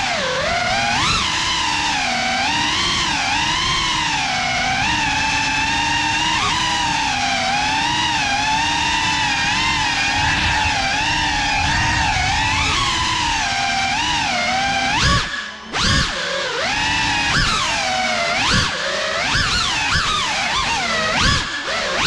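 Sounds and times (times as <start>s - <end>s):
drone motors whining: 0.0s - 22.0s
propeller rushing noise: 6.4s - 18.5s.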